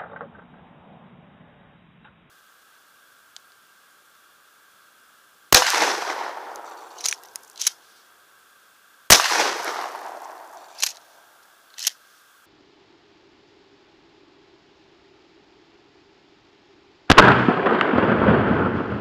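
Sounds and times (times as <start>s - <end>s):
shotgun shots with echo: 5.5s - 7.6s, 9.1s - 11.0s, 17.1s - 18.4s.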